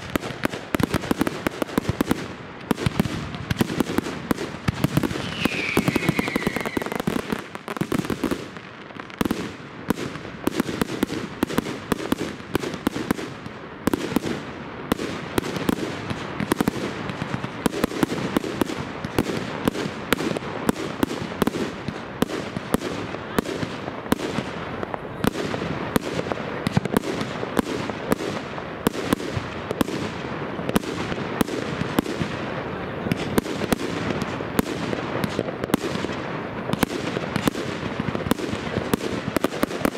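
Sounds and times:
fireworks bangs: 0:00.0 - 0:39.9
falling firework whistle: 0:05.0 - 0:07.6.

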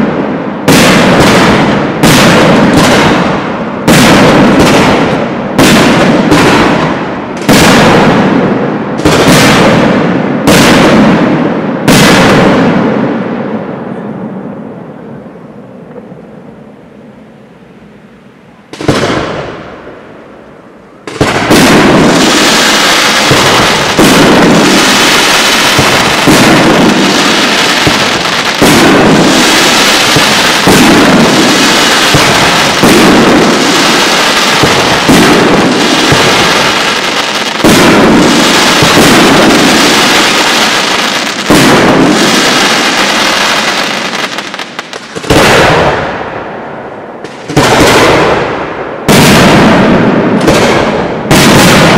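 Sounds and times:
heavy firework boom: 0:21.1 - 0:22.5, 0:23.2 - 0:37.0, 0:37.6 - 0:40.2, 0:41.5 - 0:42.9, 0:45.2 - 0:46.4, 0:47.4 - 0:51.9.

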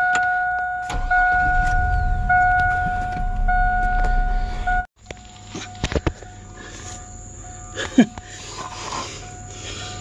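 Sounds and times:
dashboard warning chime beeps: 0:00.0 - 0:04.9
pickup engine rumbling: 0:00.3 - 0:10.0.

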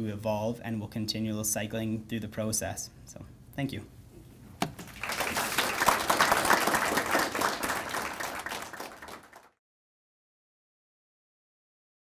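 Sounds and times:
audience applauding: 0:04.8 - 0:09.6.

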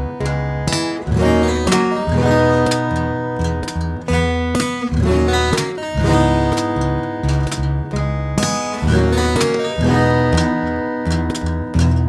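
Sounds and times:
fingerstyle acoustic guitar: 0:00.0 - 0:12.0.

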